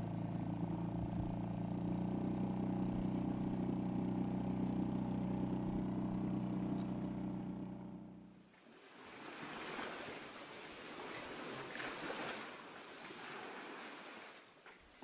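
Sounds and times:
outboard motor droning: 0.0 - 8.5.

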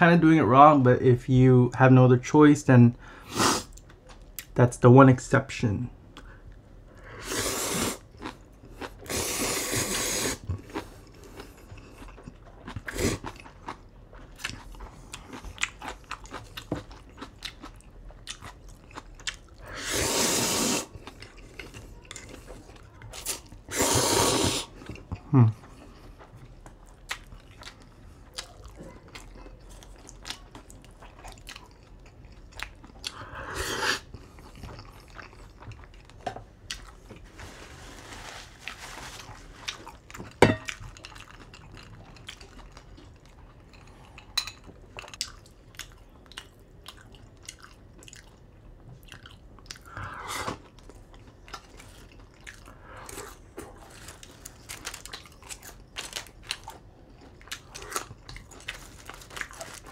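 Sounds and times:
chewing and mouth sounds: 10.4 - 19.7, 24.6 - 33.3, 34.0 - 37.2, 39.6 - 59.9.

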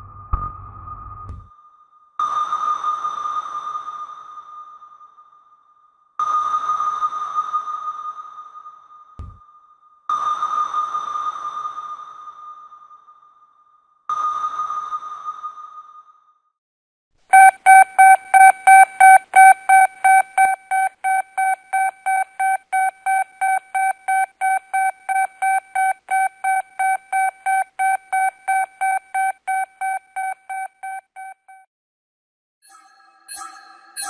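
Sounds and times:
repeating electronic beep: 17.3 - 31.6.

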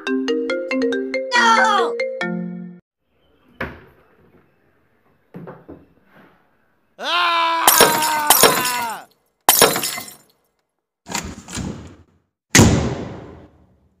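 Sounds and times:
glass breaking crashes: 7.7 - 10.2.

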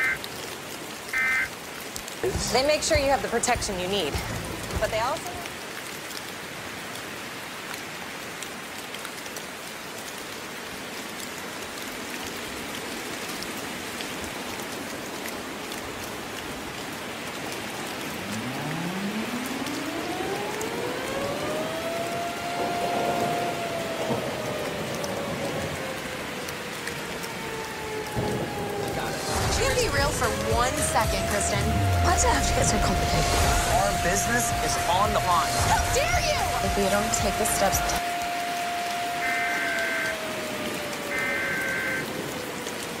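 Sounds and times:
steady rain: 0.0 - 43.0
warning siren winding up: 18.0 - 42.5.

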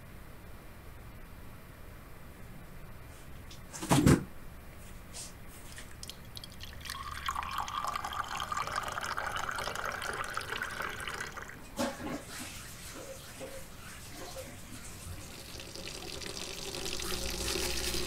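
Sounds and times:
tap water running into sink: 5.9 - 11.6, 14.2 - 18.0.

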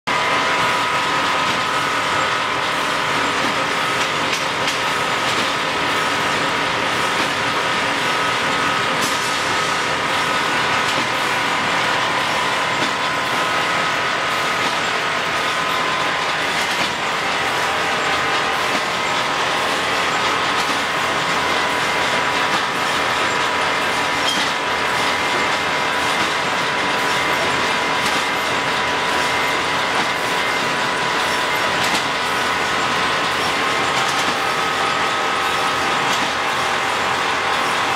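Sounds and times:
high machine whine: 0.1 - 37.9
welding machine clatter: 1.0 - 37.9.

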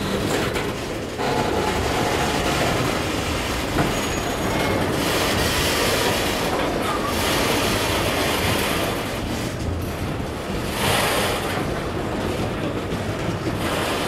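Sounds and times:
train wheels rumbling on rails: 0.0 - 14.0
high wheel squeal: 3.8 - 5.3.

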